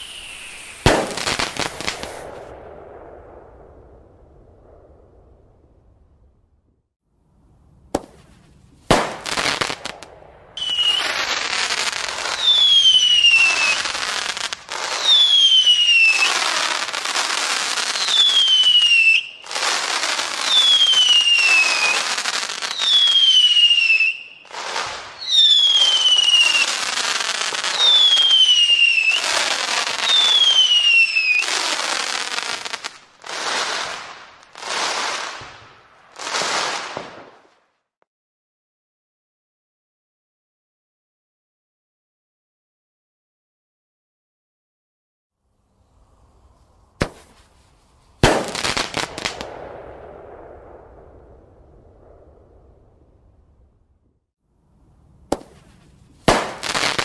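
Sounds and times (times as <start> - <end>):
hissing firework bursts: 0.0 - 2.8, 7.9 - 37.6, 46.2 - 50.6, 55.3 - 57.0
firework bang: 0.0 - 5.6, 7.9 - 17.4, 47.0 - 47.4, 48.2 - 53.3, 55.3 - 57.0
whistling fireworks: 0.0 - 6.1, 7.9 - 38.0, 45.6 - 54.3, 55.2 - 57.0.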